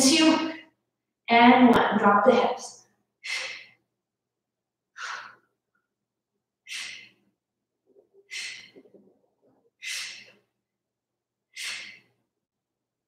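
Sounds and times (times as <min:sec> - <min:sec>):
woman breathing forcefully: 0:03.2 - 0:03.9, 0:04.9 - 0:05.6, 0:06.6 - 0:07.4, 0:08.2 - 0:09.0, 0:09.7 - 0:10.6, 0:11.4 - 0:12.3.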